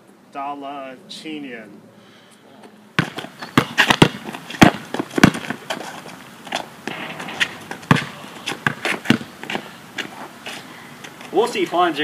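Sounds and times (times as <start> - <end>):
basketball bouncing on hard court: 3.0 - 5.6, 6.9 - 9.7
shoes scuffing: 3.0 - 11.3.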